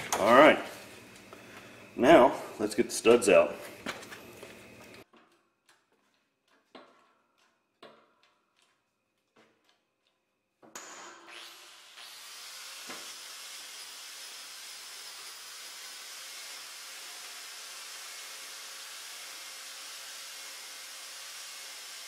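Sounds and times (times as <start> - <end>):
angle grinder whining: 10.8 - 22.0.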